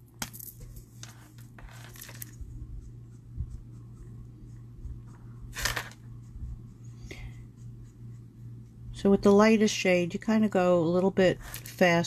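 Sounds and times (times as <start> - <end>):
low steady hum: 0.0 - 12.0
marker scratching on cardstock: 1.7 - 9.7.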